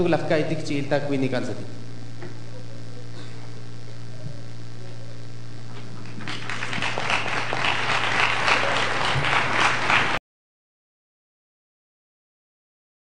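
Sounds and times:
low electrical hum: 0.0 - 10.2
audience applauding: 5.9 - 10.2.

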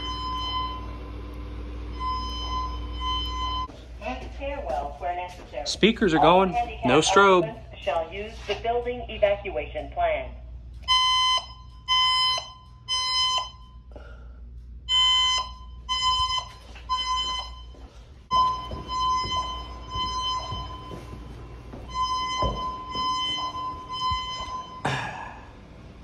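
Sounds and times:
fire alarm beeps: 0.0 - 3.8, 10.8 - 13.9, 14.8 - 24.9.

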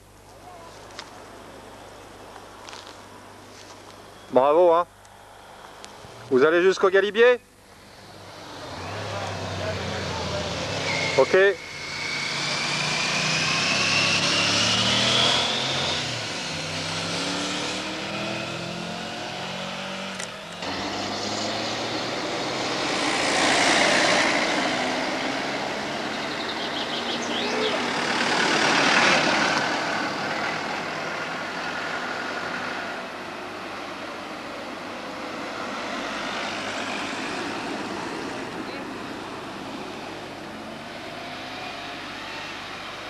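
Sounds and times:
cars passing by: 2.6 - 43.0
vehicle engine revving: 8.0 - 32.9.

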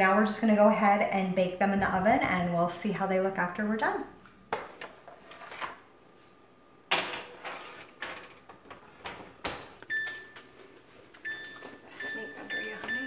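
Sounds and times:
metal pans clattering: 6.9 - 9.8
control panel beeps: 9.9 - 10.4, 11.2 - 13.0.

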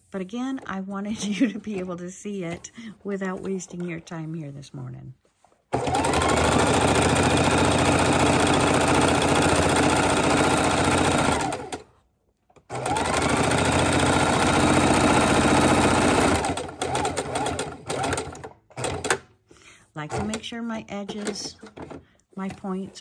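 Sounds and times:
sewing machine stitching: 5.7 - 11.9, 12.6 - 19.3, 20.1 - 23.0
sewing machine clicks: 12.6 - 19.3.

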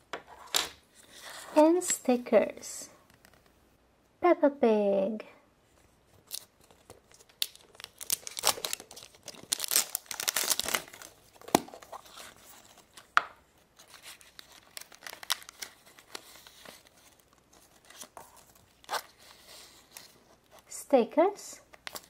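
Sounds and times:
wrapper tearing and crinkling: 6.2 - 13.0, 13.8 - 19.2.

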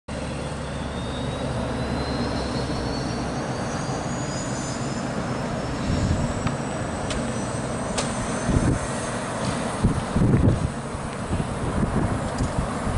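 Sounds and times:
helicopter engines and rotor: 0.1 - 12.9
turbine whine rising in pitch: 0.1 - 12.9.

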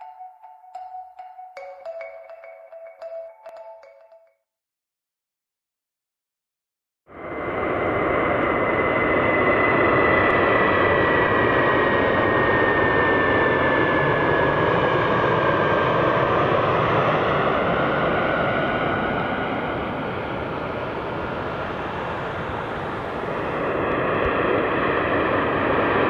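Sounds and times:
jet airliner rumble and whine: 7.1 - 26.0.

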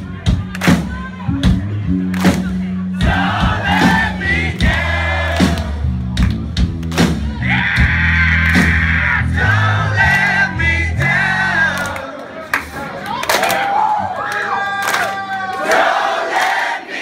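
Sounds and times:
rock band playing live: 0.0 - 11.8
voices singing together: 3.0 - 5.8, 9.0 - 12.2, 15.6 - 17.0.

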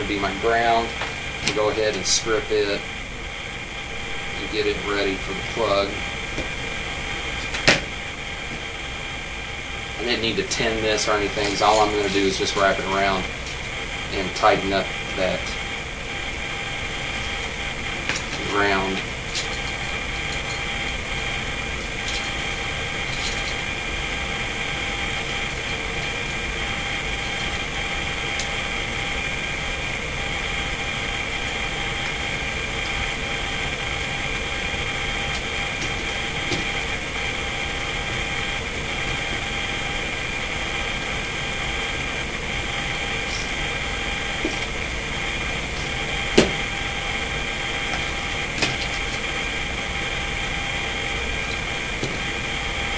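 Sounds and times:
machine hum with held tones: 0.0 - 52.9.

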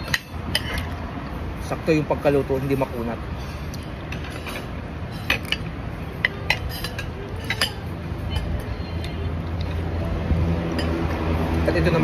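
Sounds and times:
cutlery clinking against dishes: 3.8 - 9.2.

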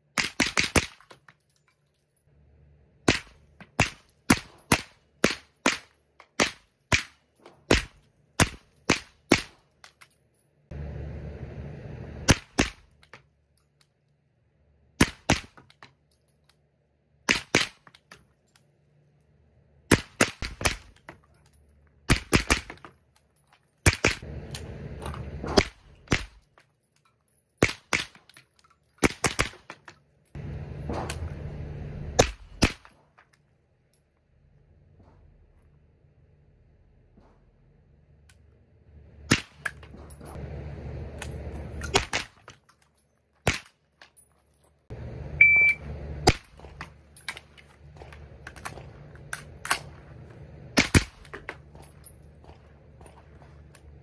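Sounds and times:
suppressed gunshots: 50.7 - 51.4.

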